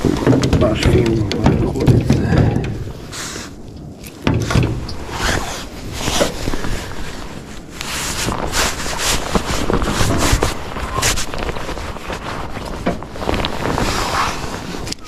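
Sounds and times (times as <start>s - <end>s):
dull knock: 0.0s - 3.0s
cloth rustling on microphone: 0.0s - 15.0s.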